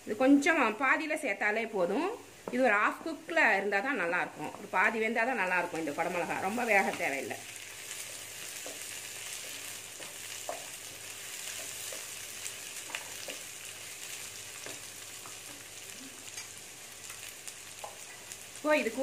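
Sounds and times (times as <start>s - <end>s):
vegetables sizzling in oil: 0.0s - 19.0s
spatula scraping and tapping pan: 7.9s - 13.5s, 17.8s - 18.2s.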